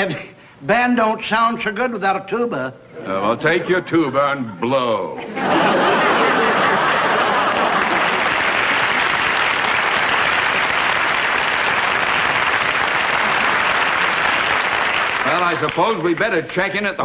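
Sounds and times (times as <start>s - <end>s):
audience applauding: 5.6s - 16.5s.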